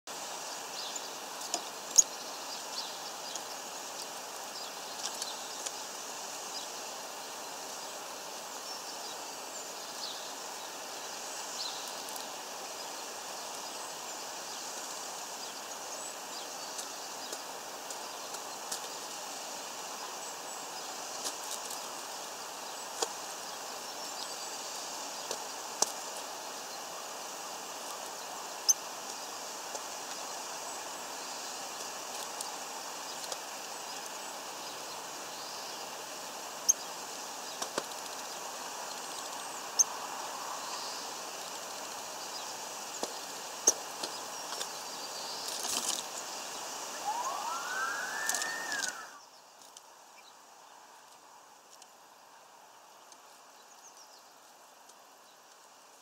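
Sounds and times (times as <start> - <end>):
steady background hiss: 0.1 - 56.0
birds pecking and landing: 45.4 - 46.2.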